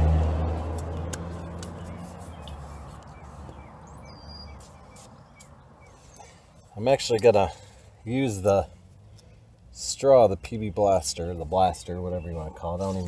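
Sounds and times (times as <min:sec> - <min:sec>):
vehicle engine hum: 0:00.0 - 0:13.0
birds chirping: 0:00.6 - 0:13.0.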